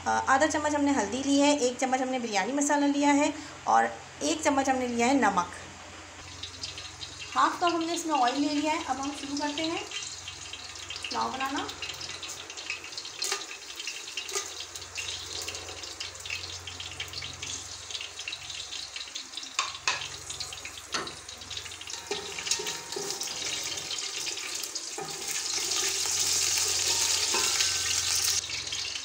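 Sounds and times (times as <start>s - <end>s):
spices sizzling in hot oil: 6.2s - 29.0s.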